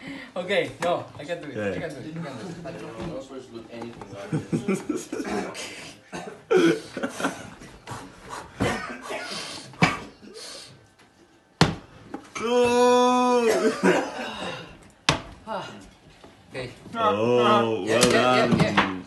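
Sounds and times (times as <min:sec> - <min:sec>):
person shouting: 0:12.4 - 0:13.7.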